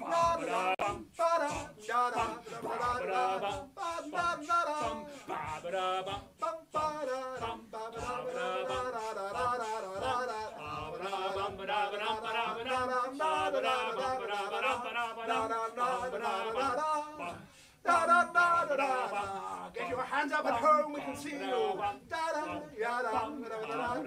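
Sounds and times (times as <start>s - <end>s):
two men singing: 0.0s - 24.0s.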